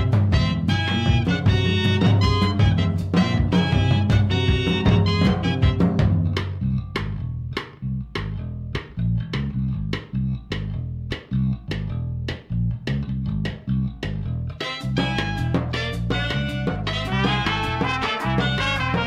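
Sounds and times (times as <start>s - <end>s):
bass playing plucked rhythm: 0.0s - 19.0s
guitar playing plucked rhythm: 0.0s - 19.0s.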